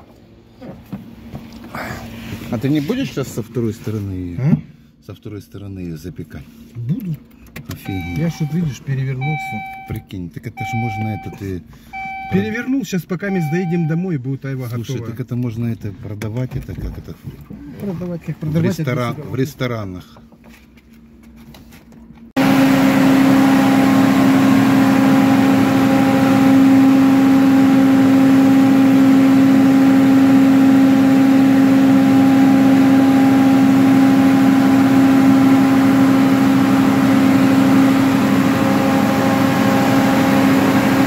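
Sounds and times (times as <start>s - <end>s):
generator engine drone: 7.9s - 9.9s, 22.4s - 41.0s.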